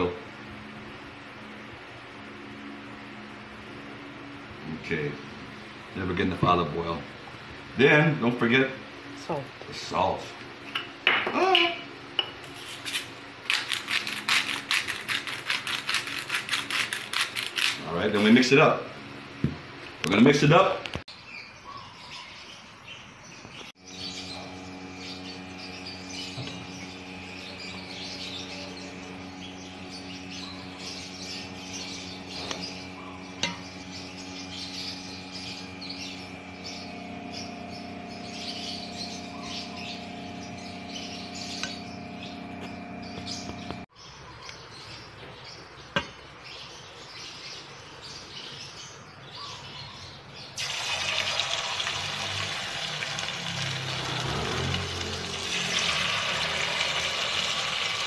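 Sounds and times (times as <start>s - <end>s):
small birds chirping: 20.1s - 50.6s
steady hum: 23.8s - 43.9s
chicken sizzling in hot oil: 50.6s - 58.0s.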